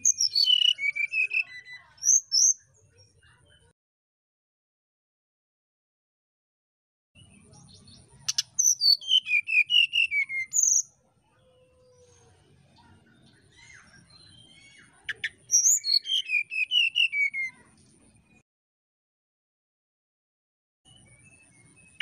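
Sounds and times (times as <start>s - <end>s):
bird singing fluty song: 0.0s - 3.7s, 7.2s - 18.4s, 20.8s - 22.0s.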